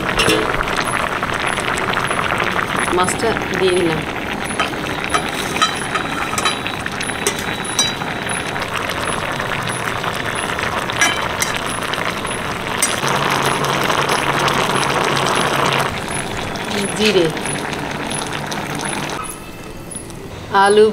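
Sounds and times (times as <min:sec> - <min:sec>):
spatula clinking metal pan: 0:00.0 - 0:00.8, 0:04.5 - 0:13.2.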